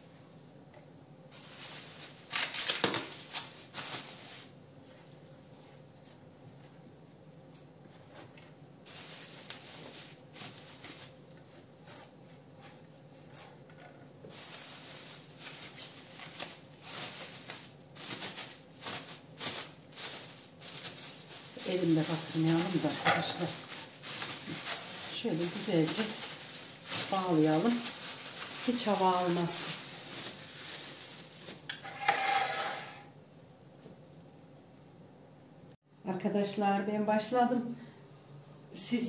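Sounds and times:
plastic bag crinkling: 1.3s - 4.6s, 8.8s - 33.1s.

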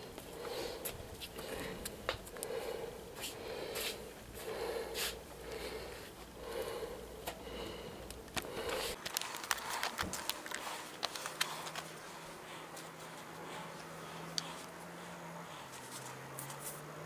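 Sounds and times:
person breathing and sniffing: 0.0s - 16.9s
steady low hum: 0.0s - 17.0s
hands handling parts clicking: 8.0s - 12.0s.

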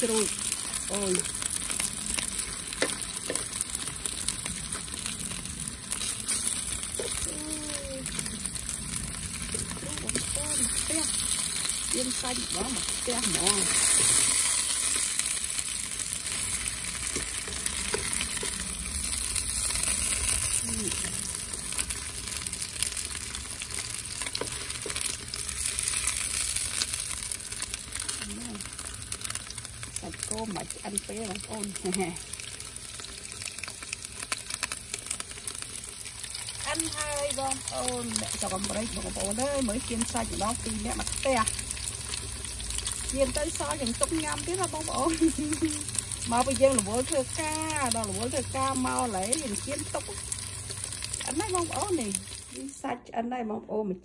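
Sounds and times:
meat sizzling in oil: 0.0s - 52.8s
tongs clicking on pan: 2.7s - 3.6s, 17.0s - 18.7s.

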